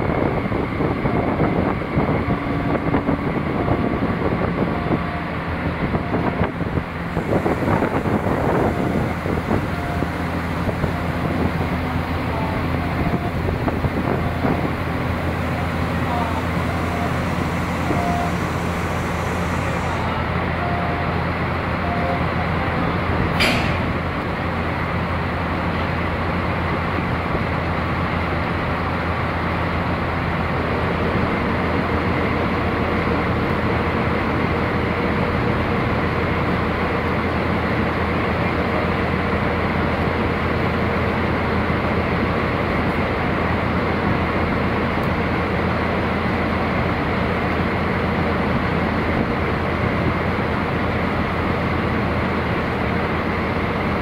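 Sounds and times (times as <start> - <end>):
steady higher hum: 1.1 - 23.3
locomotive engine idling: 2.2 - 26.6.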